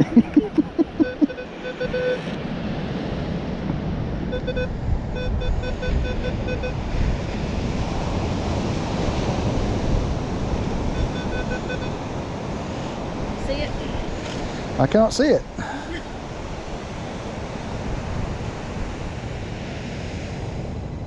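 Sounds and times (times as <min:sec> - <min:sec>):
wind noise on microphone: 0:00.0 - 0:14.8, 0:16.2 - 0:21.0
metal detector beeping: 0:00.9 - 0:02.3, 0:04.3 - 0:06.8, 0:10.9 - 0:12.0.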